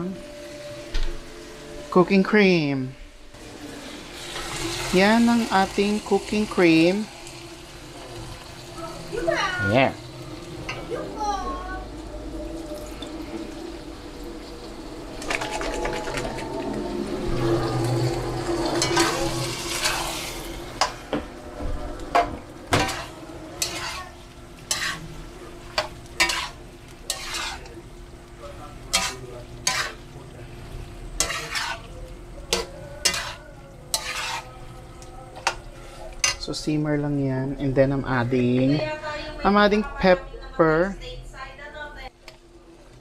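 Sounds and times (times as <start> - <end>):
sauce sizzling in a pan: 0.0 - 39.6
utensil scraping a pan: 15.2 - 21.3, 22.1 - 27.8, 28.9 - 30.1, 31.0 - 34.8.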